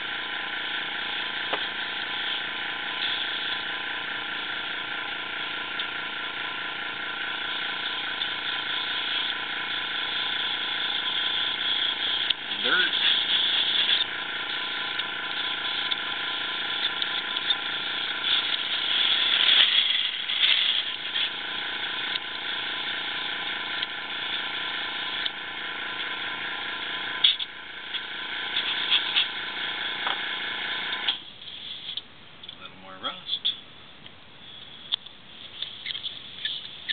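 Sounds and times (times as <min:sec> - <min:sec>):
steady hum: 0:00.0 - 0:36.9
airbrush hissing: 0:01.0 - 0:03.8.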